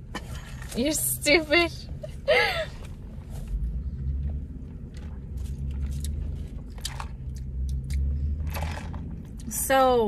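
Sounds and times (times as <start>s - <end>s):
car engine rumbling: 0.0s - 10.0s.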